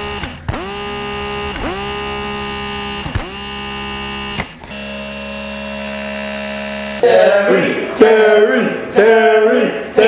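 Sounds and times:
buzzing electronic tone: 0.0 - 7.5.

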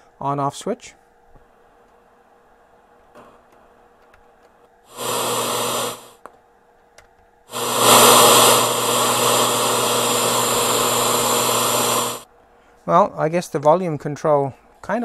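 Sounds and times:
radio static hiss: 4.9 - 6.2, 7.5 - 12.3.

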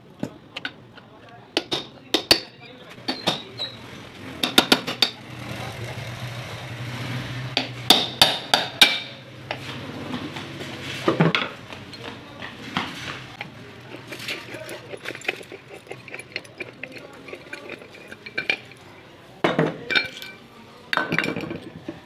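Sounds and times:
metallic clinks and knocks: 13.4 - 18.9.

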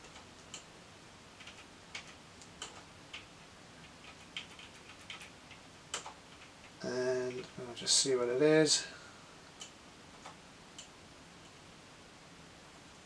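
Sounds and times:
computer keyboard key clicks: 5.9 - 6.5.

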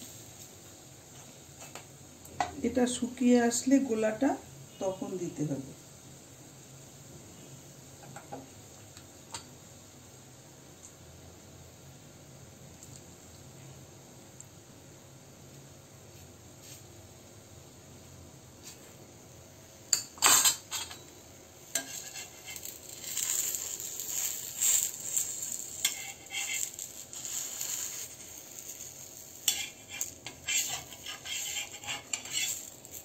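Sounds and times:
metal spatula scraping pan: 21.7 - 33.0.

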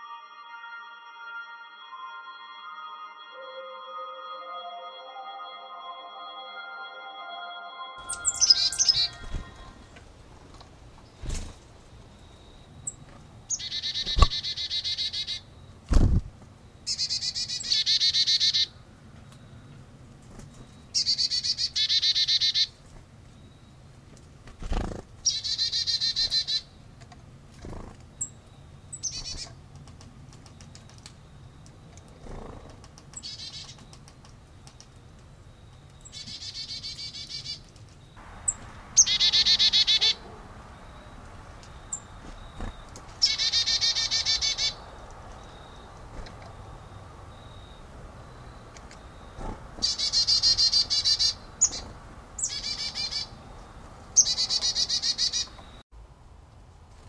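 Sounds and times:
chickadee buzzy calls: 8.0 - 9.8, 38.2 - 53.5, 54.2 - 55.6.

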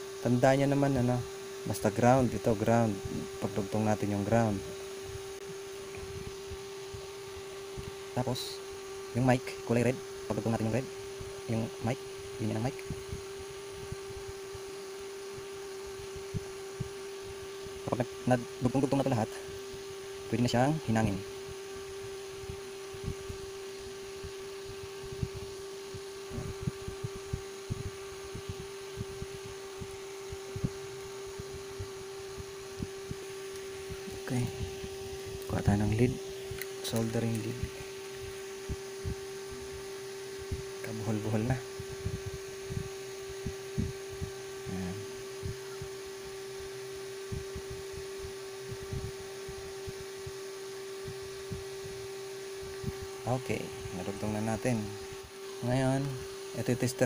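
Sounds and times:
electrical hum: 0.0 - 57.0
headphone wires rustling: 32.6 - 38.6.

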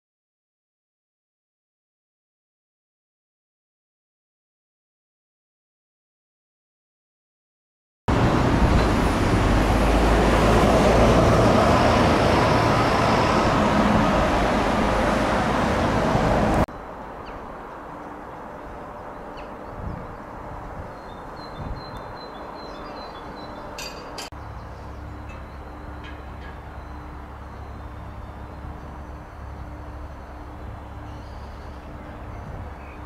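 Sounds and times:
train passing: 8.1 - 21.4, 22.1 - 33.0.

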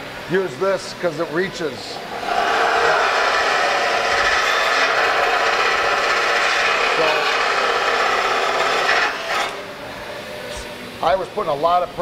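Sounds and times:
belt sander grinding metal: 2.0 - 9.8.

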